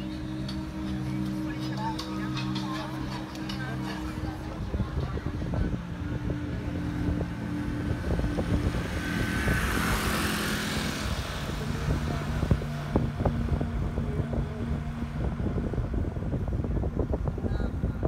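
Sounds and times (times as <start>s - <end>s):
rushing noise: 0.0s - 17.5s
car engine hum and road noise: 0.0s - 18.0s.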